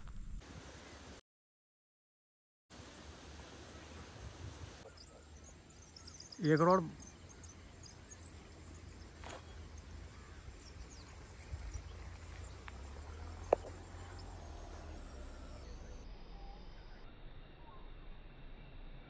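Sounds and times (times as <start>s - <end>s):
wind rumble on microphone: 0.0s - 0.7s, 4.0s - 4.9s, 9.6s - 14.4s
faint high chirping: 3.6s - 19.0s.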